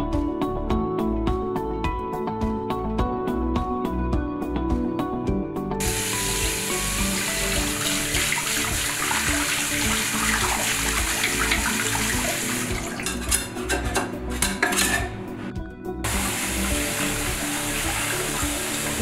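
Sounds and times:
tap water running into sink: 5.8 - 15.1, 16.1 - 19.0.

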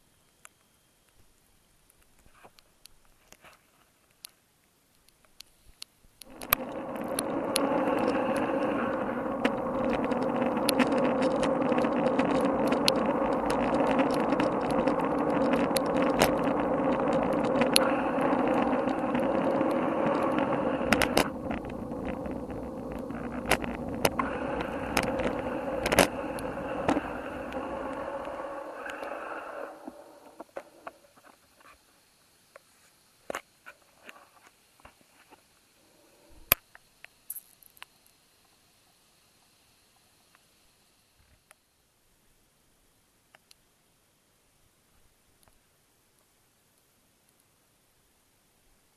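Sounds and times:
sharp clicks: 4.1 - 31.0
muffled wind and road rumble: 6.2 - 30.4.

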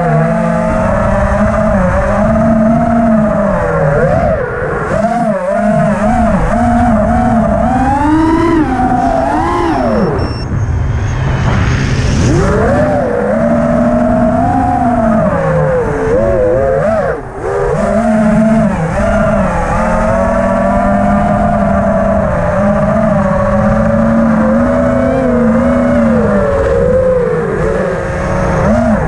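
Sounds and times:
drone propellers whining: 0.0 - 29.0.

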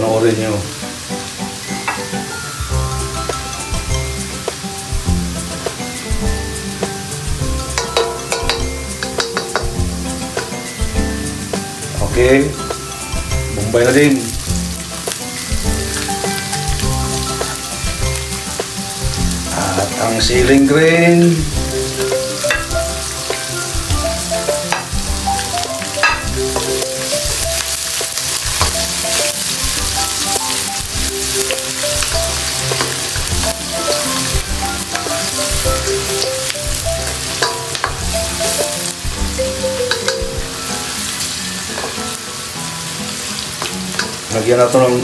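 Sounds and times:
garlic and onion sizzling in oil: 0.0 - 45.0
light background music: 0.0 - 45.0
utensil clicking against pan: 7.8 - 9.8, 39.9 - 40.3, 43.6 - 44.2.

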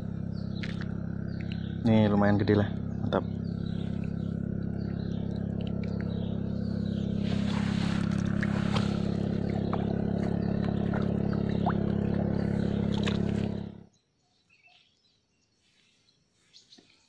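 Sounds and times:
engine droning: 0.0 - 14.0
rustling: 7.2 - 9.2.

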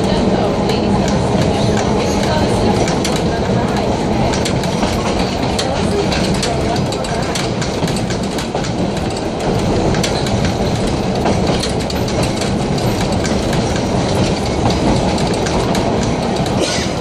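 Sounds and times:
streetcar rumbling on track: 0.0 - 17.0
wheels clicking on rails: 0.0 - 17.0.

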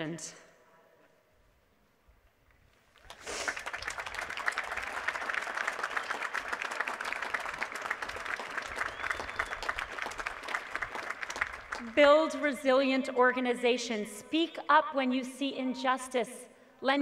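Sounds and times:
crowd applauding: 3.0 - 12.0
high whistle: 8.8 - 9.8.

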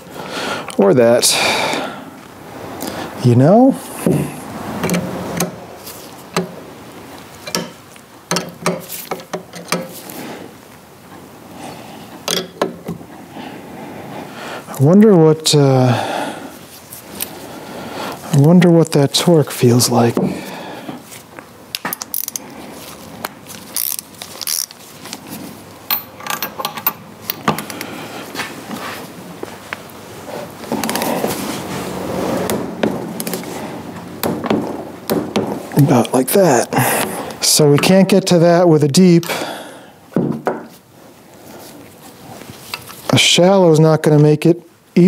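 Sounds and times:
wrench clicks and metal knocks: 7.4 - 10.0, 12.3 - 12.9, 25.9 - 27.8
ratchet wrench clicking: 23.8 - 24.7.

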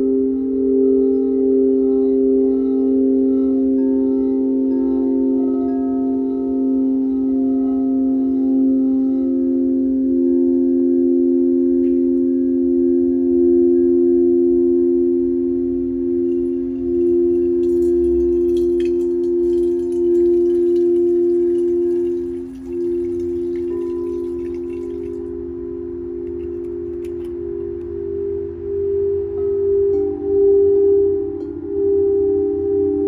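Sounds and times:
singing bowls ringing: 0.0 - 33.0
water pouring and trickling: 16.3 - 28.1.

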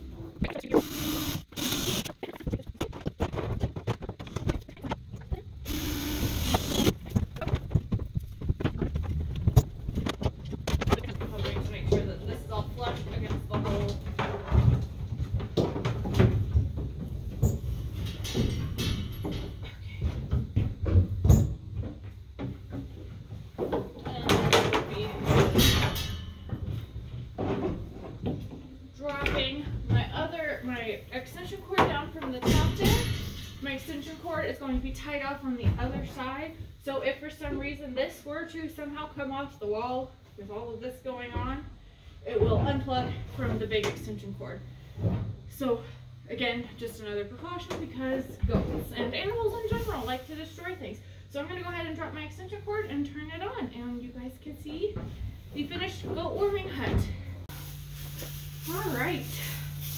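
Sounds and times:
cordless drill running: 0.8 - 2.0, 5.7 - 6.9
knocks and clatter on plastic barrel: 2.7 - 5.1, 12.8 - 17.6
handling knocks and rustles: 6.9 - 30.8.

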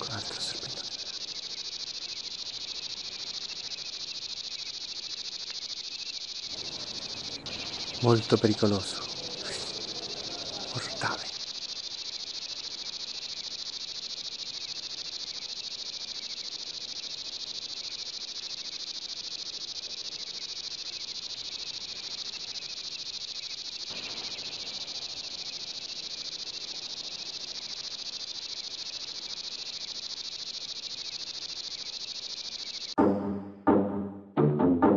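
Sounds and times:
night insects chirring: 0.0 - 33.0
music drum hits: 33.0 - 34.9.

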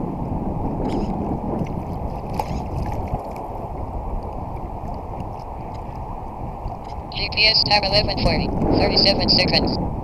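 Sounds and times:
wind rushing on microphone: 0.0 - 10.0
water splashing against hull: 0.7 - 7.2.

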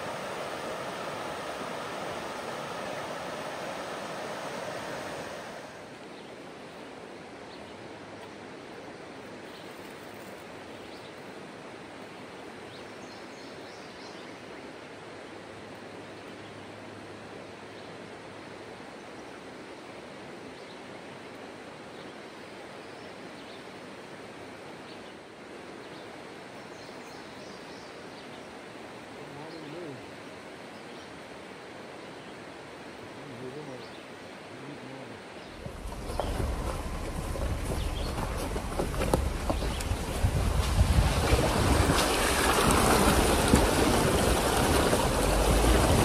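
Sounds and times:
water rushing over rocks: 0.0 - 7.4, 32.6 - 46.0.

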